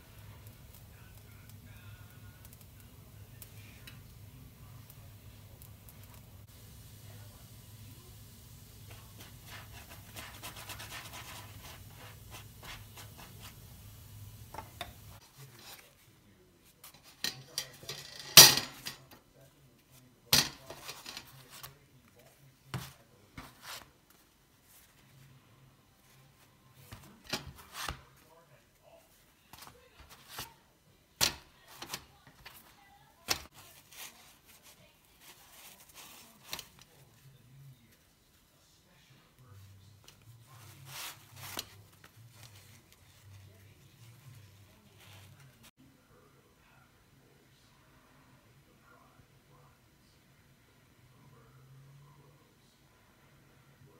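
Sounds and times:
quiet rustling: 0:00.0 - 0:31.0, 0:31.6 - 0:45.7
brush scratchy strokes: 0:08.9 - 0:13.6.

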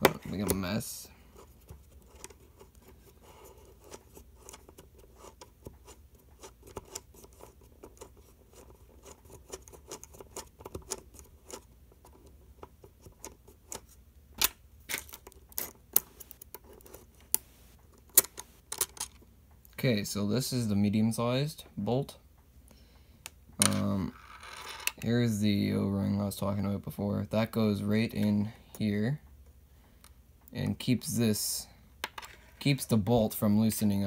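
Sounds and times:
small metallic clicks and scraping: 0:01.6 - 0:19.8.

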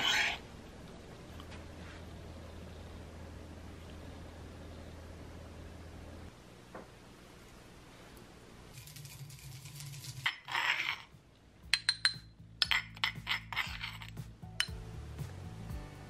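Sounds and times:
spoon scraping stone mortar: 0:00.0 - 0:00.4, 0:08.7 - 0:14.8
quiet background music: 0:08.7 - 0:16.0
pestle grinding in stone mortar: 0:08.8 - 0:14.8.

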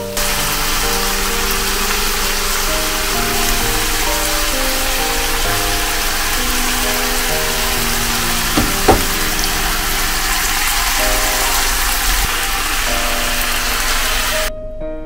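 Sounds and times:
food sizzling in frying pan: 0:00.0 - 0:14.5
knocks on pan: 0:08.6 - 0:09.4.

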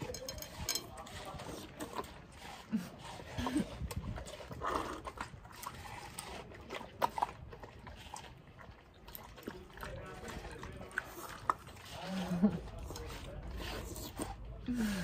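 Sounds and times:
dogs chewing and slurping: 0:00.0 - 0:15.0.

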